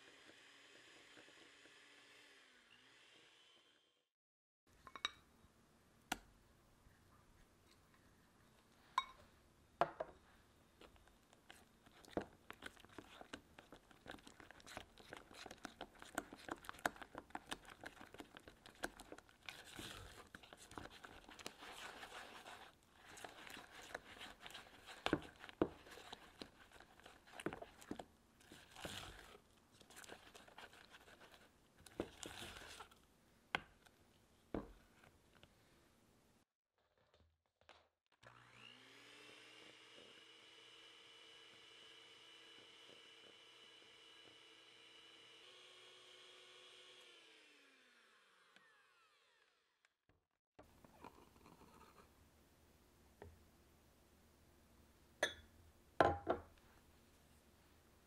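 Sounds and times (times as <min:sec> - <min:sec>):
spatula scraping batter in bowl: 0:10.9 - 0:33.0
hand mixer whirring: 0:38.2 - 0:49.7.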